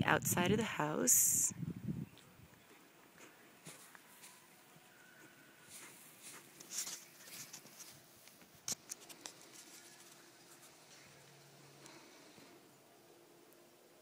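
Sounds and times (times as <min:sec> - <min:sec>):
footstep scuffs: 0:02.6 - 0:10.1.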